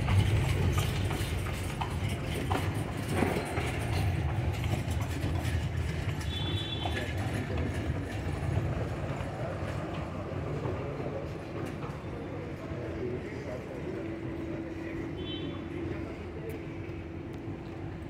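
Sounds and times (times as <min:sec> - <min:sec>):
hoof clops: 0:00.0 - 0:08.6
carriage wheels rumbling on stone: 0:00.0 - 0:10.0.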